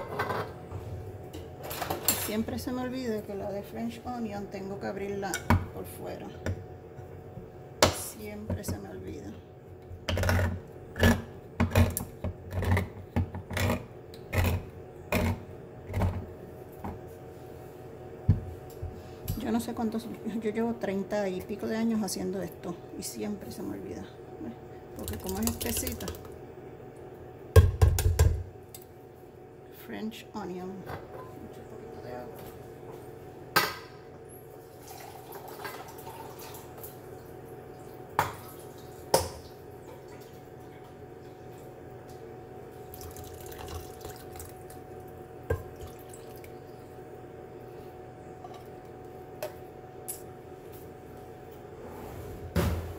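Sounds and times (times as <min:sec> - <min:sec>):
manual can opener grinding: 0:10.0 - 0:16.2
water trickling into can: 0:42.9 - 0:44.7.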